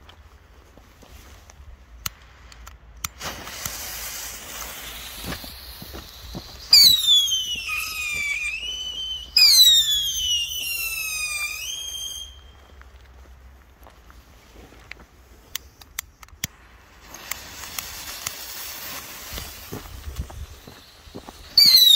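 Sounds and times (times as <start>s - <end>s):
firework pops: 2.0s - 12.4s, 15.6s - 21.9s
firework hiss: 2.1s - 12.5s, 16.5s - 21.9s
firework whistle sliding down: 3.4s - 12.7s, 17.1s - 21.9s.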